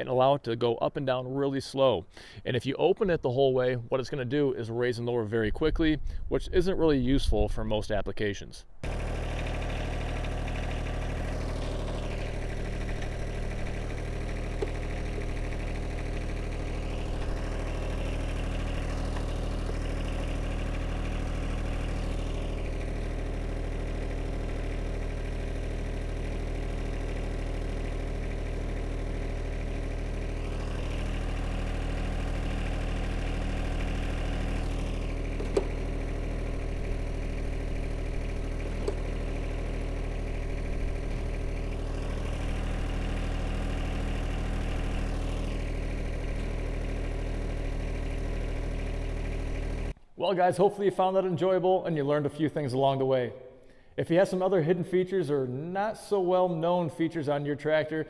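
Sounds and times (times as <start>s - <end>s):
diesel engine idling: 8.8s - 50.0s
hydraulic whine: 8.8s - 50.0s.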